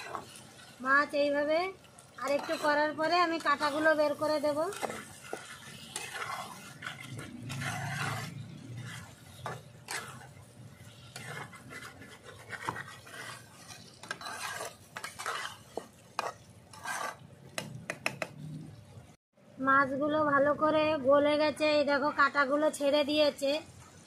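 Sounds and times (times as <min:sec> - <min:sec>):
metal spatula scraping a pan: 0:00.0 - 0:17.7.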